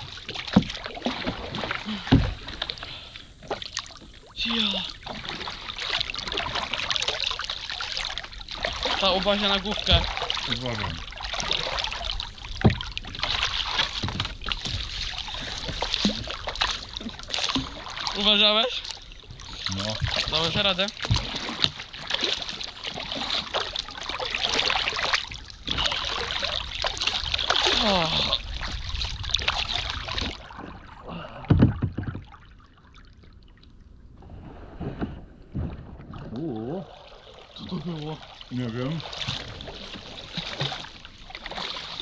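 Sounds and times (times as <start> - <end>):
paddle scraping: 0.0 - 32.4, 34.2 - 42.0
paddles splashing in shallow water: 0.0 - 42.0
paddle knocks: 0.2 - 2.6, 9.8 - 12.0, 12.6 - 18.1, 19.9 - 23.8, 31.4 - 32.4
dull thump with short knocks: 31.5 - 32.3.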